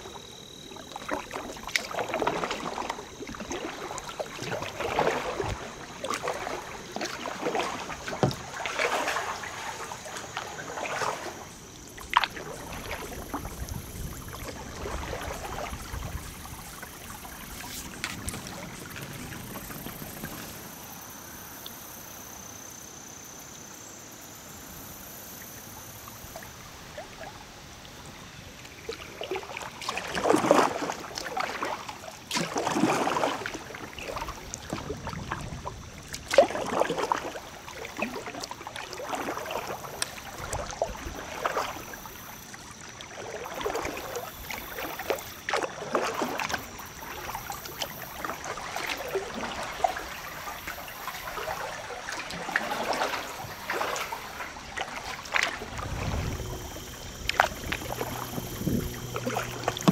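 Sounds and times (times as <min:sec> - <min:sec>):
paddles splashing in water: 0:00.0 - 0:21.4, 0:25.8 - 0:59.9
flowing river: 0:00.0 - 0:59.9.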